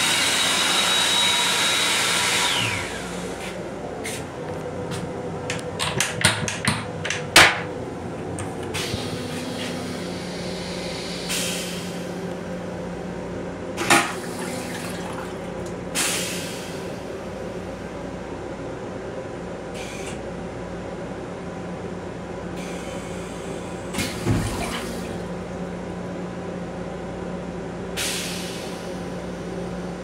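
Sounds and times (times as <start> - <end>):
electric hand dryer whine: 0.0 - 3.6
train hum: 0.0 - 30.0
toilet flush water draining: 13.8 - 16.8, 24.0 - 25.3.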